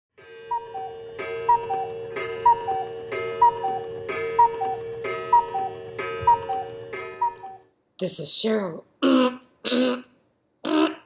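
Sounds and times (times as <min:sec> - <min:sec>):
steady held tone: 0:00.2 - 0:07.7
clock ticking: 0:00.4 - 0:07.6.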